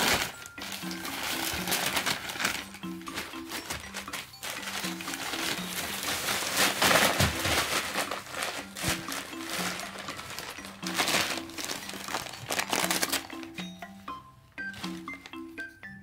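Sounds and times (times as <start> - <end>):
packing paper rustling: 0.0 - 13.5
light background music: 0.0 - 16.0.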